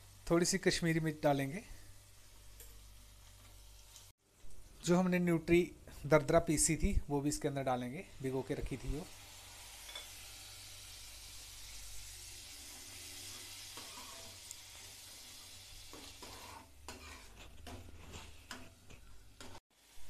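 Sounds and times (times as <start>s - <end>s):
food sizzling in oil: 0.0s - 4.2s, 7.8s - 20.0s
metal ladle scraping pan: 13.7s - 14.4s, 15.9s - 19.6s.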